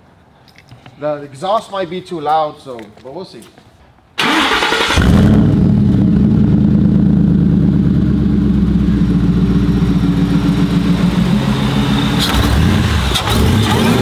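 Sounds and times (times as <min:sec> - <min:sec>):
truck engine idling: 0:06.6 - 0:14.0.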